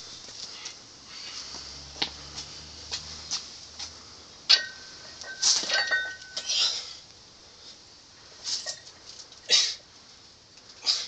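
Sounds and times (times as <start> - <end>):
strained noisy breaths: 0.0 - 5.6
barbell plates clanking: 4.5 - 6.5
metallic ringing tone: 4.5 - 6.5.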